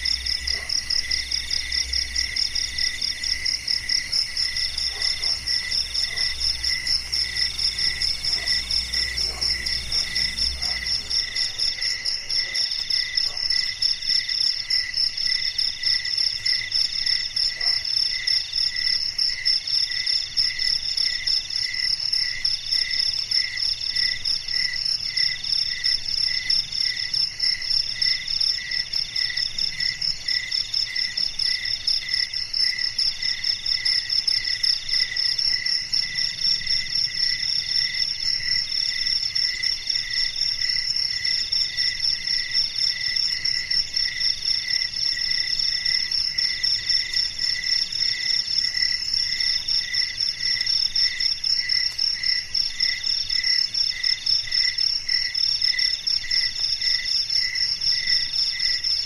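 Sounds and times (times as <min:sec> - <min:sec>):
high continuous insect trill: 0:00.0 - 0:59.0
low pulsing insect call: 0:00.0 - 0:59.0
middle-pitched insect call: 0:00.0 - 0:59.0.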